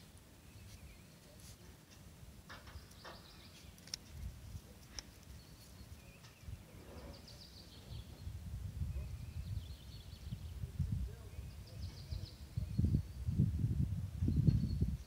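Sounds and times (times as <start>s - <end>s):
small birds chirping: 0.0s - 13.4s, 14.2s - 15.0s.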